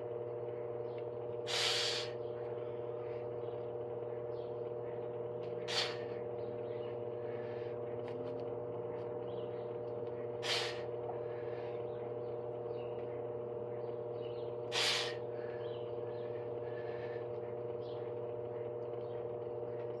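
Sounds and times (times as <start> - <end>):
steady mechanical hum: 0.0 - 20.0
sharp hissing breaths: 1.4 - 2.2, 5.6 - 6.2, 10.4 - 11.8, 14.7 - 15.7.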